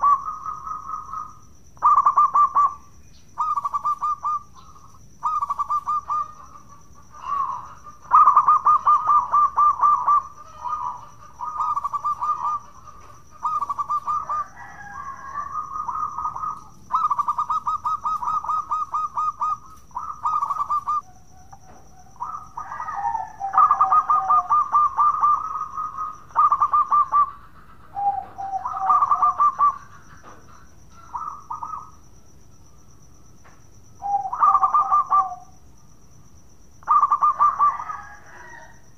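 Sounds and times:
dove cooing: 0.0 - 32.0, 34.0 - 35.5, 36.8 - 38.8.

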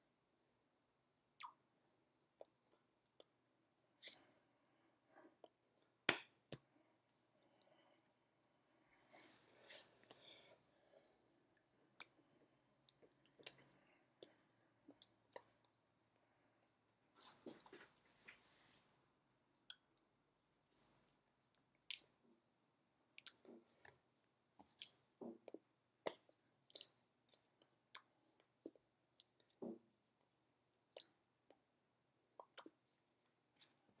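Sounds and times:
small mouth noises: 1.4 - 1.7, 2.3 - 3.4, 23.2 - 24.0, 24.6 - 29.4, 32.4 - 32.8.

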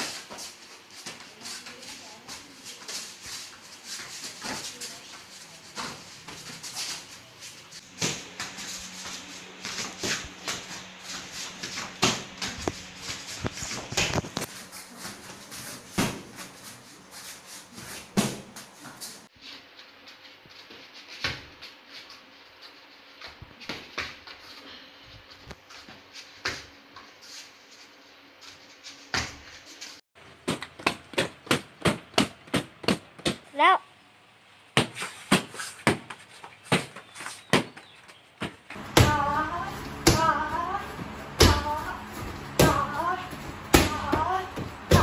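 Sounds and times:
kicks smacking padded shield: 38.4 - 45.0.

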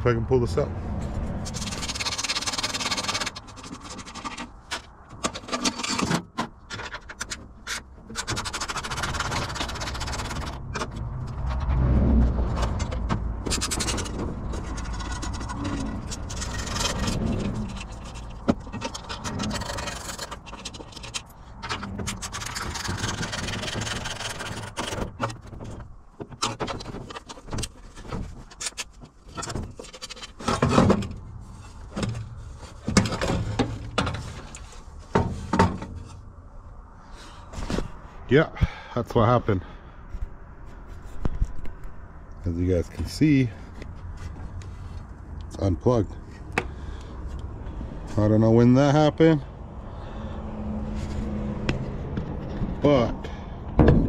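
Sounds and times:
metal scraping and rubbing: 1.0 - 36.3.

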